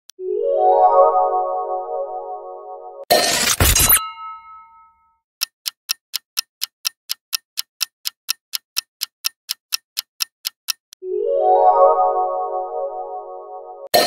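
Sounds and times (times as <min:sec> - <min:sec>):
music jingle: 0:00.2 - 0:03.1, 0:11.0 - 0:14.0
clock ticking: 0:05.4 - 0:11.0.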